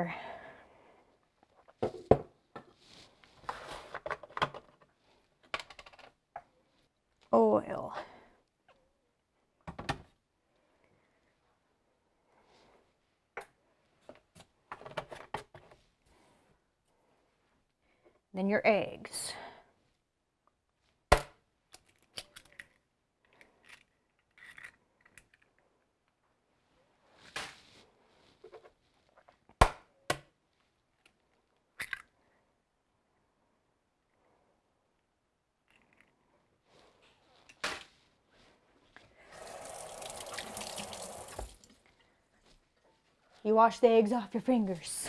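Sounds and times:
faint handling sounds: 1.2 - 7.3, 21.8 - 29.5, 34.0 - 39.3
tap water running: 39.2 - 41.8.

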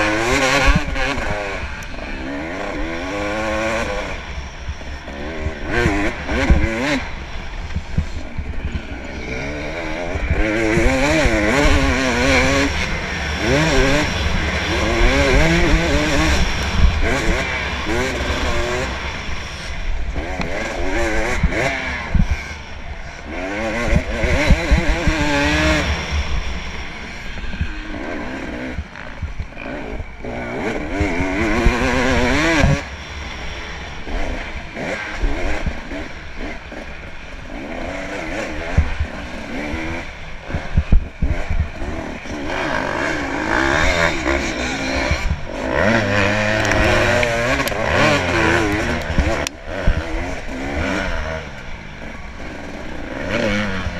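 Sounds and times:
dirt bike engine revving: 0.0 - 53.9.

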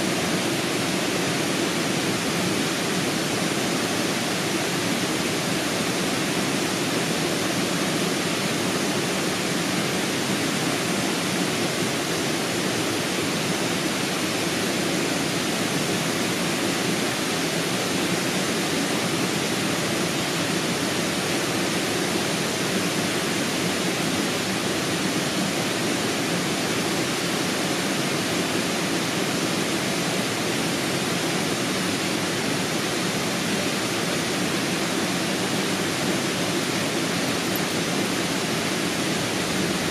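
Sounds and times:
flowing water rushing: 0.0 - 39.9.

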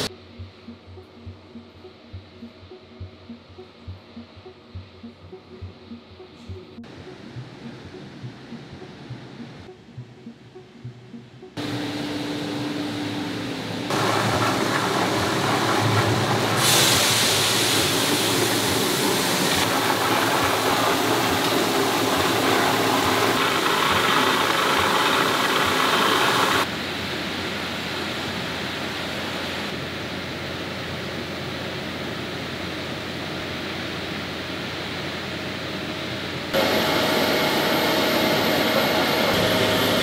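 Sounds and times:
factory machinery hum: 0.0 - 40.0
hissing rush: 13.9 - 26.6.

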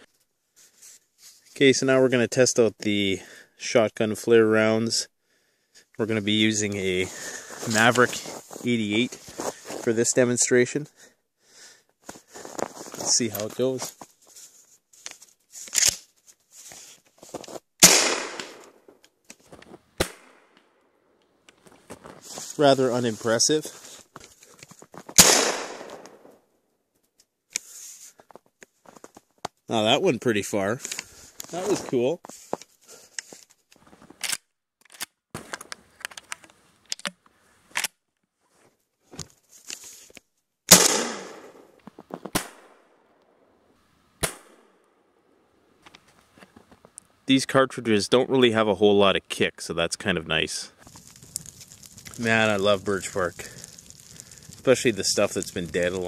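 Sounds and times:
gun handling clicks and clacks: 15.0 - 16.1, 33.1 - 38.0
sharp cracks: 15.7 - 16.1, 17.8 - 23.0, 23.8 - 26.4, 40.7 - 43.6, 44.2 - 46.0, 50.8 - 56.0
shotgun shot: 17.8 - 18.7, 20.0 - 20.5, 25.2 - 26.3, 40.7 - 41.7, 42.3 - 42.8, 44.2 - 44.7
short sharp crack: 17.8 - 19.0, 20.0 - 20.7, 25.1 - 26.4, 40.7 - 41.7.

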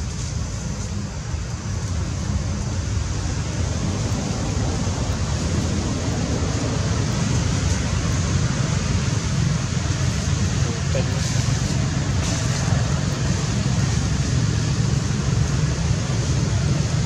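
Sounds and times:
rushing noise with fluttering rumble: 0.0 - 17.0.

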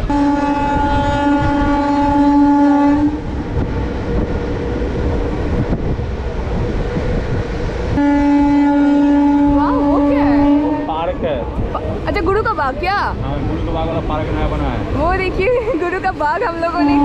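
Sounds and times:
train horn blast: 0.0 - 3.4, 7.9 - 11.5, 16.7 - 17.0
train rumbling and rattling on rails: 0.0 - 17.0.

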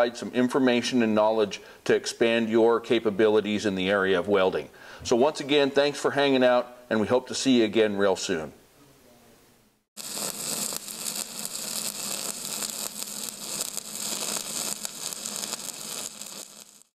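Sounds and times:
steady hiss: 10.0 - 16.9
faint crackle: 10.0 - 17.0.

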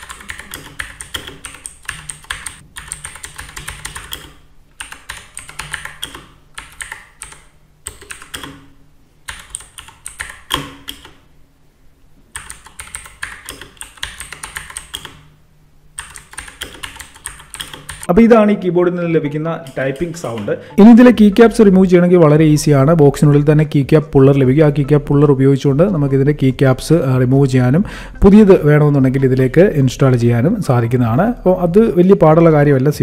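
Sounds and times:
mechanical keyboard typing: 0.0 - 8.7, 9.3 - 11.2, 12.3 - 15.3, 16.0 - 18.1, 19.6 - 20.6.

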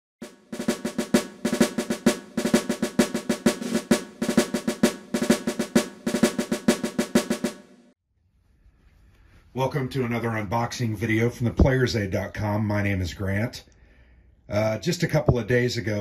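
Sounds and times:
snare drum rolls: 0.2 - 7.6.

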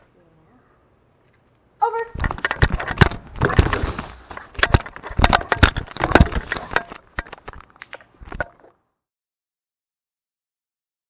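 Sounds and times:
camera housing clicking and knocking: 4.4 - 8.7.

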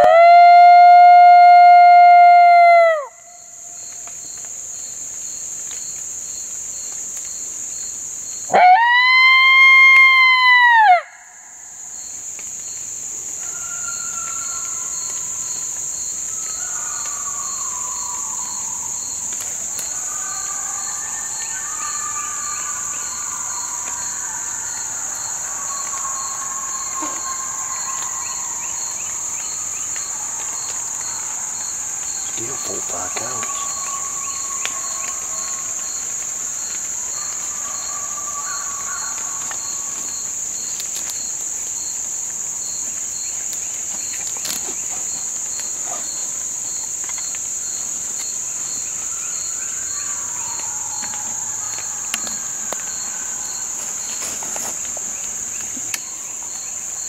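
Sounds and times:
coyote howler call: 0.0 - 3.6, 8.5 - 11.5, 13.4 - 40.3, 48.8 - 54.4
insect drone: 0.0 - 57.0
coyotes howling: 8.5 - 12.0, 13.1 - 41.6, 42.3 - 57.0.

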